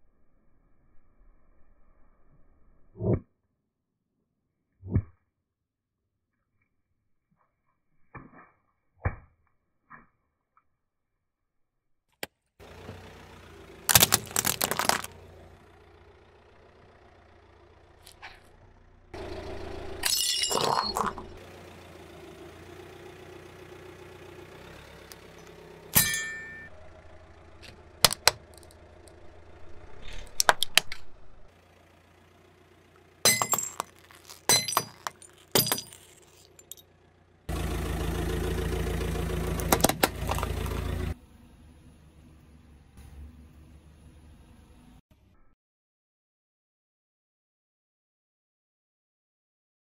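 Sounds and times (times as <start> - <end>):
rolling car rumble: 12.6 - 45.0
tyre crushing plastic toys: 13.9 - 15.2, 28.0 - 28.7, 33.3 - 36.8, 39.5 - 40.8.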